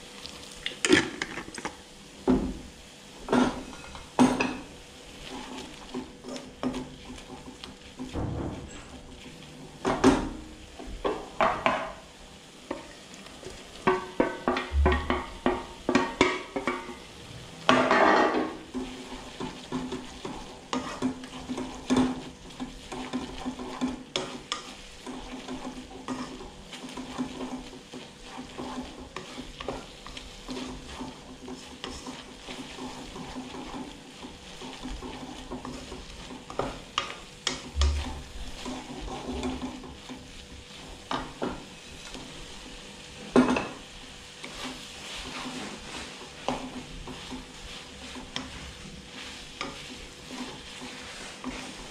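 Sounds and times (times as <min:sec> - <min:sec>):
food sizzling in a wok: 0:00.0 - 0:51.9
spatula scraping a pan: 0:03.2 - 0:12.0, 0:12.6 - 0:51.9
low steady hum: 0:37.7 - 0:38.6.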